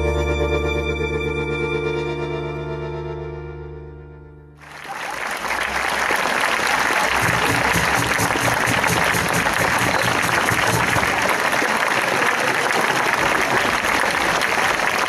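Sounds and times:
audience applause: 4.6s - 15.0s.

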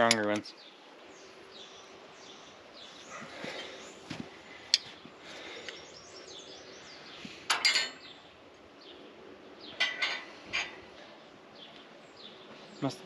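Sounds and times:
birds chirping: 0.0s - 13.0s
metal tools clinking: 7.5s - 8.0s, 9.8s - 10.8s.

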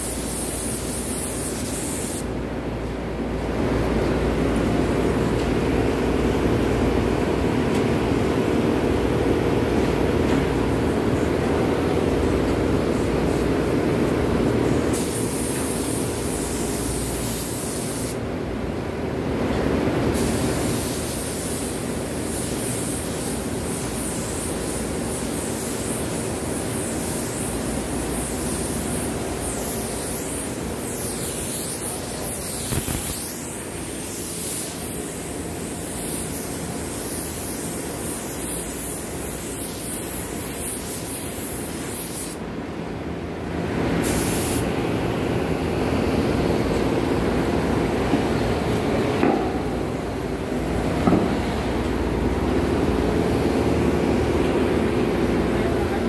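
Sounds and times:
paint spray gun hissing: 0.0s - 2.3s, 14.9s - 18.2s, 20.2s - 42.4s, 44.0s - 44.7s.

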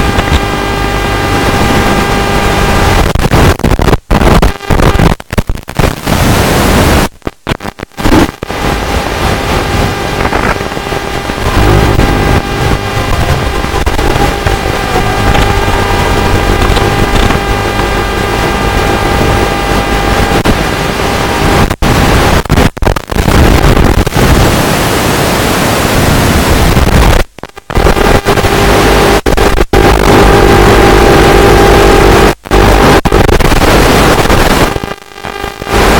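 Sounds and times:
steady whining tones: 0.0s - 3.5s, 7.4s - 22.1s
radio hiss and buzz: 0.0s - 35.9s.

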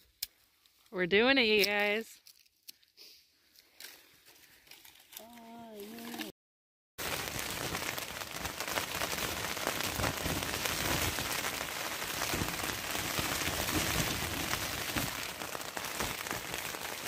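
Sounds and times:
rain on tent fabric: 7.0s - 17.0s.

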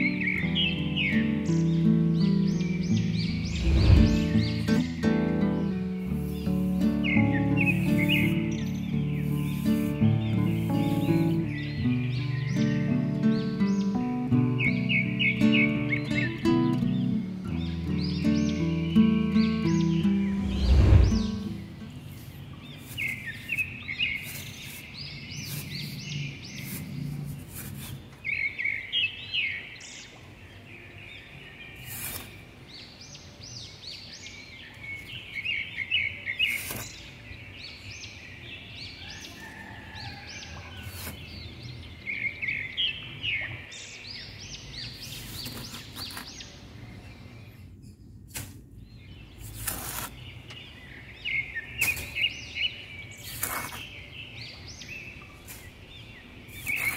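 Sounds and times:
birds chirping in trills: 0.0s - 48.2s, 48.8s - 56.9s
shovel digging into damp sand: 6.1s - 11.6s, 20.4s - 21.6s, 22.7s - 28.1s, 31.8s - 32.5s, 36.4s - 37.1s, 40.8s - 41.4s, 45.0s - 46.5s, 48.3s - 48.7s, 49.3s - 50.3s, 51.8s - 52.5s, 53.1s - 54.0s, 55.4s - 55.8s, 56.5s - 56.9s.

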